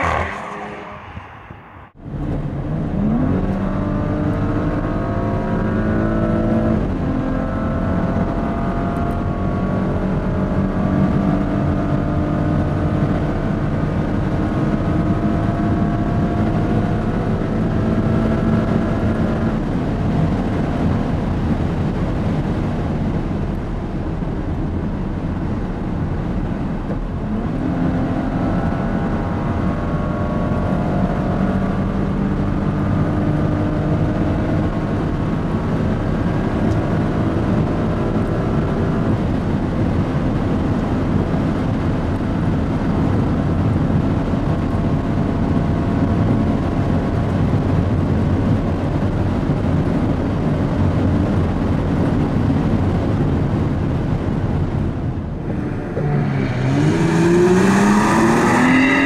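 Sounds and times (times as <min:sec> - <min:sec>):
car engine accelerating: 0:00.0 - 0:59.0
wind and tyre noise: 0:00.0 - 0:59.0.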